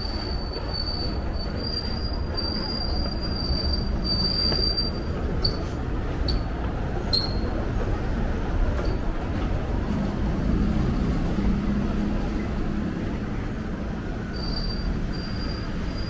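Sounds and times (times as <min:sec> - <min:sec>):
high metallic squeal: 0:00.2 - 0:05.6, 0:14.3 - 0:16.0.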